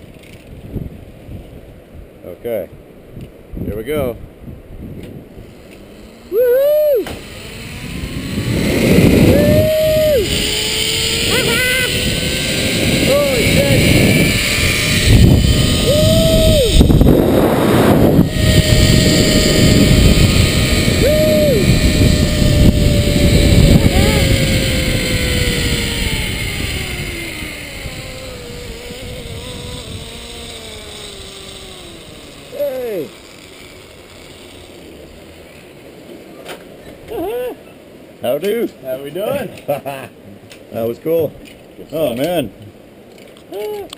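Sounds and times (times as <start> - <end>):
zipline trolley on cable: 0.0 - 0.6, 5.0 - 43.9
wind rush: 0.5 - 2.2, 6.3 - 32.4
man whooping: 6.2 - 7.5, 8.7 - 12.4, 13.0 - 26.8, 37.1 - 37.7, 43.5 - 43.9.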